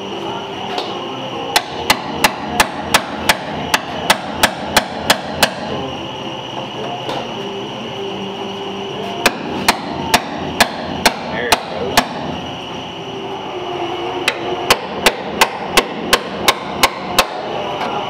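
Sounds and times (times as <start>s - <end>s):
hammer striking metal punch: 1.5s - 5.7s, 9.2s - 12.3s, 14.3s - 17.5s.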